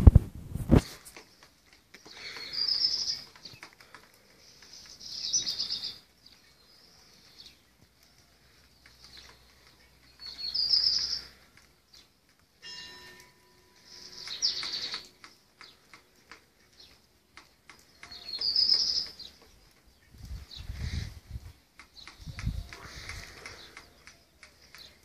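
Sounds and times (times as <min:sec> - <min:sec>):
small bird trilling: 0:13.8 - 0:15.1, 0:18.0 - 0:19.3.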